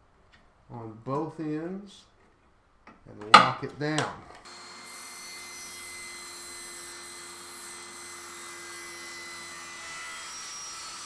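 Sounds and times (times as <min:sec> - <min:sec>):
table saw cutting hardboard: 0:04.5 - 0:11.0.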